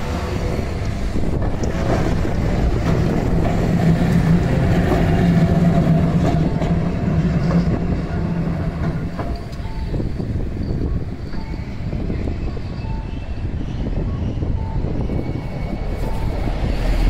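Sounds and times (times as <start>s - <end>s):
rumbling wheel and road noise: 0.0s - 11.2s
electric tram humming: 0.0s - 17.0s.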